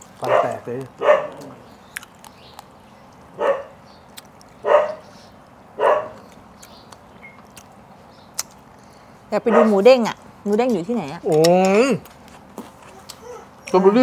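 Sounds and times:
dog barking: 0:00.2 - 0:01.5, 0:03.4 - 0:03.8, 0:04.6 - 0:05.1, 0:05.8 - 0:06.2, 0:09.5 - 0:09.8.

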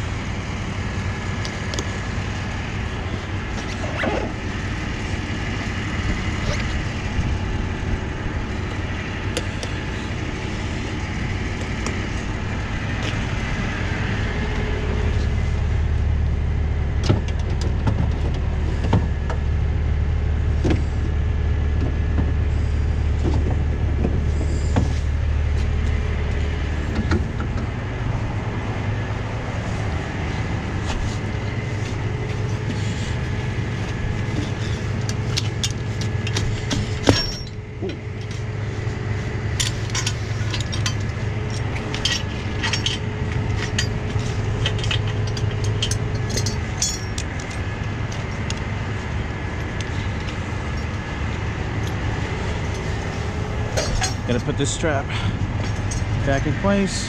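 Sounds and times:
truck engine running: 0:00.0 - 0:57.0
metallic clinks of tow gear: 0:34.4 - 0:38.4, 0:39.6 - 0:48.6, 0:52.7 - 0:54.8, 0:55.6 - 0:56.3
sharp metal clank: 0:53.8 - 0:54.2.

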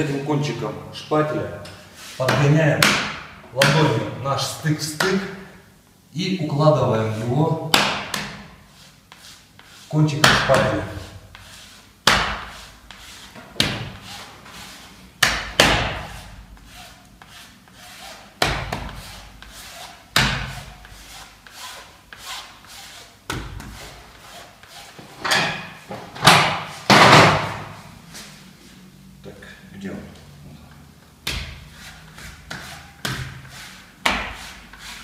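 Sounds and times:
spatula scraping wallpaper: 0:08.2 - 0:25.2, 0:31.6 - 0:35.0.

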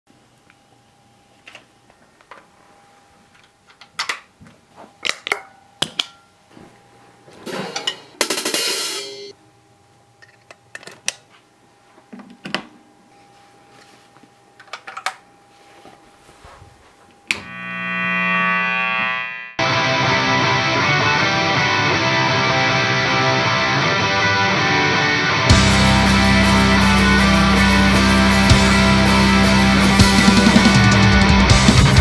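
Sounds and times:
faint steady hum: 0:00.1 - 0:08.2.

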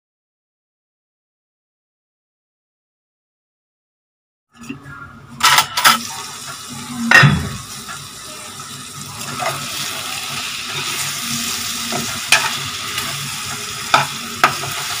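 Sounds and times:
gravy sizzling in a pan: 0:05.4 - 0:15.0
spoon stirring and scraping: 0:09.1 - 0:15.0.

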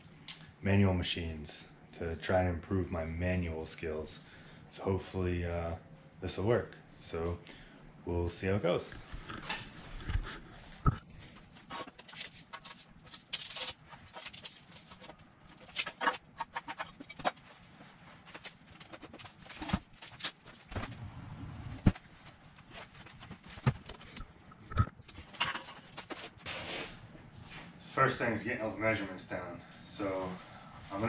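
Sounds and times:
person moving about rustling: 0:08.7 - 0:28.0.

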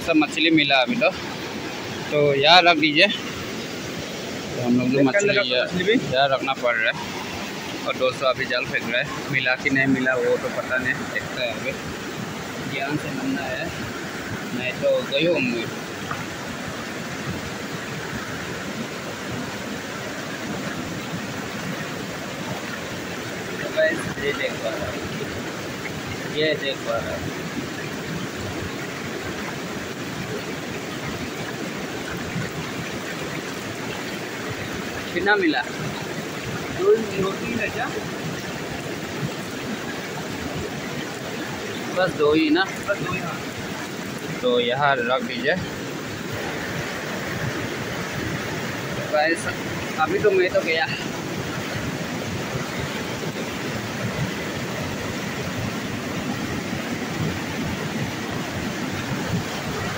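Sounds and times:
river water rushing over rocks: 0:00.0 - 0:59.9.

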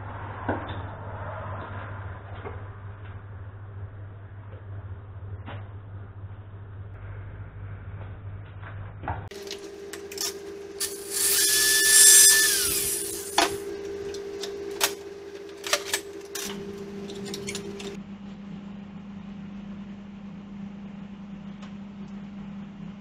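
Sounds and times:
power tool whining: 0:10.1 - 0:14.2.

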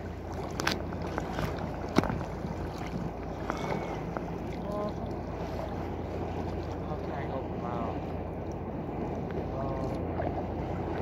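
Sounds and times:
water lapping against kayak hull: 0:00.0 - 0:11.0
wind rumble on microphone: 0:00.0 - 0:11.0.

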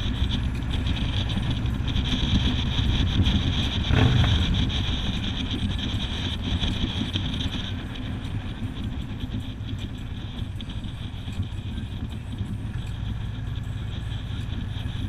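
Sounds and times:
vehicle rumble: 0:00.0 - 0:15.0
wind noise on microphone: 0:00.0 - 0:15.0.

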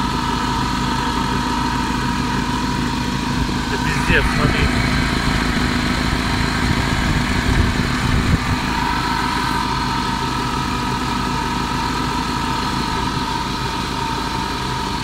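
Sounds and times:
car engine idling: 0:00.0 - 0:15.0
steady whine: 0:02.8 - 0:14.3.

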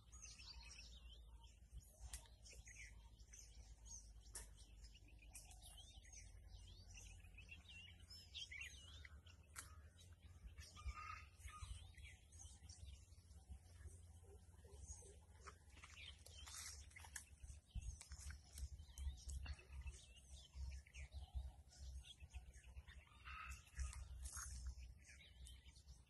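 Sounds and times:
faint bird chirps: 0:00.0 - 0:26.0
faint sharp clicks: 0:02.0 - 0:02.7.

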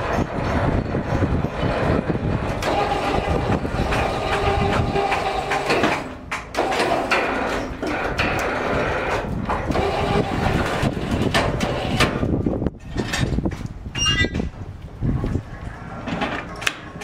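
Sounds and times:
mechanical rumble: 0:00.0 - 0:17.0.

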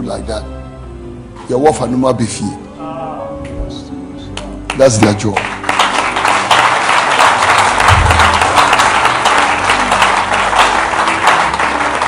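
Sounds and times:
crowd applauding: 0:04.7 - 0:12.0.

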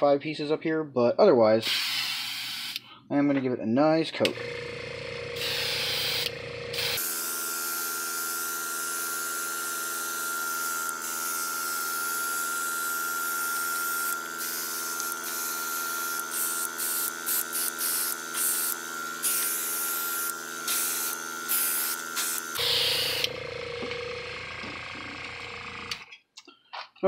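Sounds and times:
airbrush spraying hiss: 0:05.4 - 0:06.9, 0:14.0 - 0:23.3
constant hum: 0:22.6 - 0:26.2.

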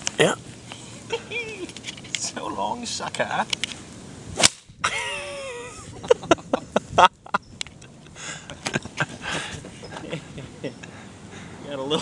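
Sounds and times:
person crying out: 0:01.1 - 0:01.7.

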